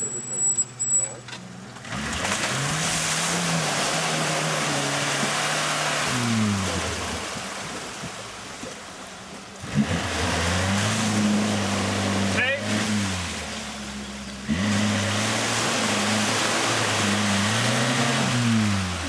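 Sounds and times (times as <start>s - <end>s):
off-road engine revving: 0.0s - 8.7s, 9.5s - 19.0s
tyres churning mud and water: 0.0s - 19.0s.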